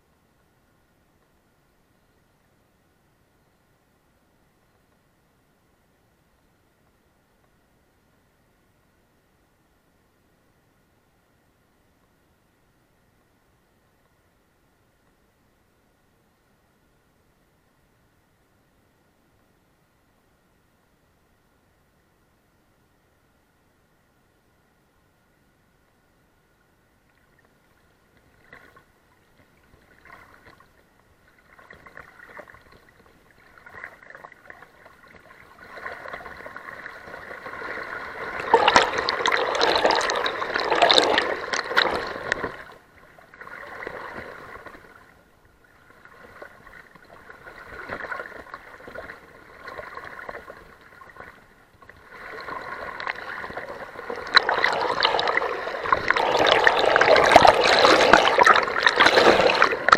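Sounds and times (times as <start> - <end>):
river water splashing and gurgling: 27.2 - 59.9.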